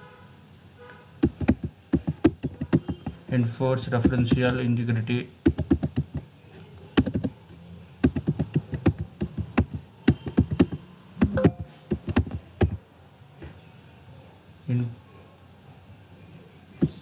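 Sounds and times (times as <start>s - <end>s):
typing on computer keyboard: 1.2s - 3.2s, 4.0s - 4.6s, 5.5s - 6.3s, 7.0s - 7.4s, 8.0s - 12.8s.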